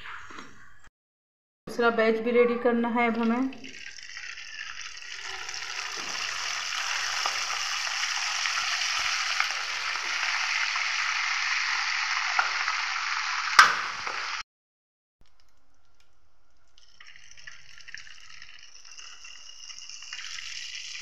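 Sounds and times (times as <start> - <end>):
dough frying in hot oil: 3.7 - 14.4, 15.2 - 21.0.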